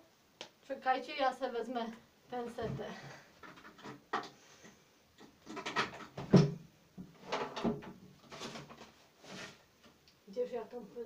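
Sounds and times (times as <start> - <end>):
knocks and sharp bump: 5.5 - 8.6.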